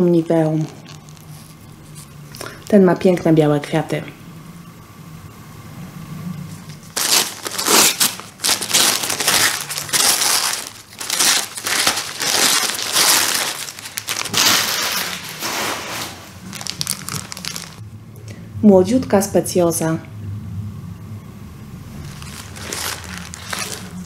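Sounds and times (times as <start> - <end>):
paper crinkling: 6.5 - 17.8, 22.0 - 24.0.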